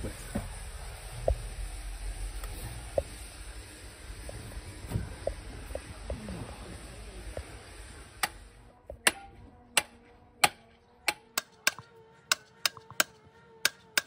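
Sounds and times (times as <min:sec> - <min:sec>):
steady hiss: 0:00.0 - 0:08.6.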